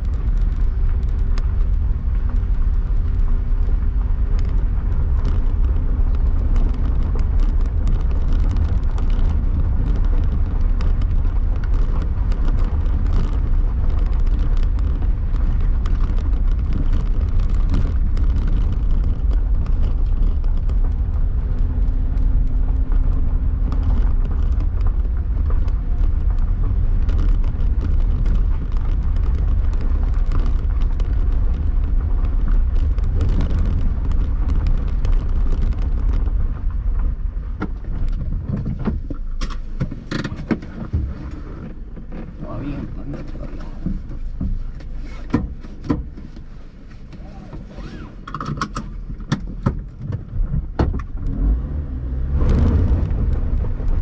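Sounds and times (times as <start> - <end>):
engine and tyres rumbling: 0.0 - 54.0
gravel clicks and knocks: 0.0 - 54.0.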